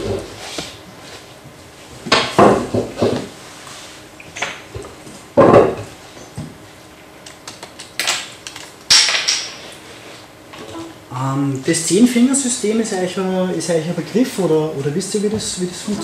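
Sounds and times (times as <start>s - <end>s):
objects knocking on a desk: 2.1s - 3.3s.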